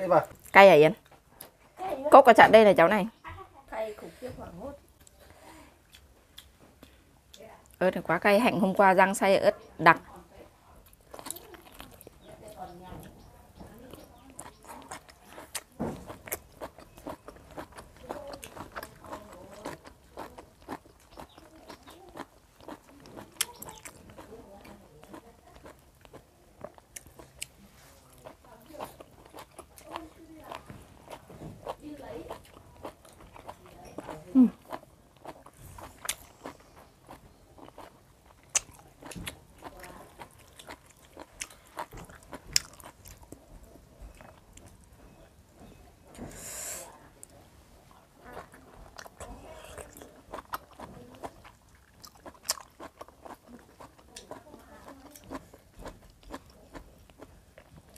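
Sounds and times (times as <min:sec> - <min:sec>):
close-up chewing: 0:10.8 - 0:45.1, 0:47.2 - 0:57.9.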